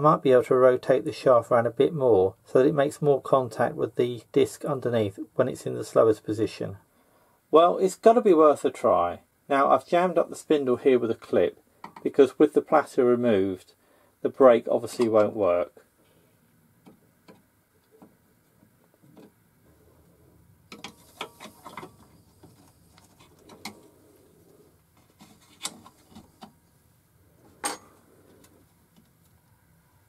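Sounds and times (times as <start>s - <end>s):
screwdriver clicks and scrapes on metal: 20.7s - 22.1s, 25.1s - 26.5s.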